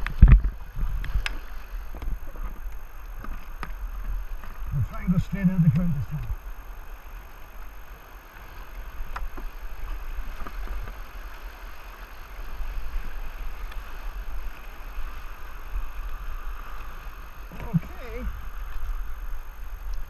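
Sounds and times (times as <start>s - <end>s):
low rumble on microphone: 0.0s - 7.1s, 12.6s - 20.0s
white water rushing: 3.8s - 19.8s.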